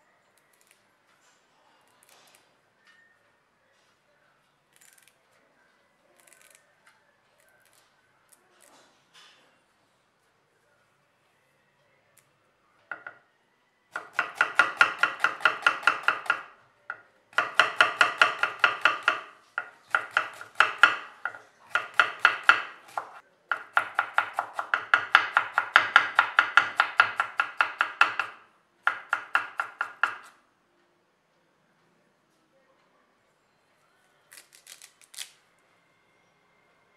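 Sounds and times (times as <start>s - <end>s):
knife chopping on wooden board: 14.0s - 16.5s, 17.4s - 30.3s.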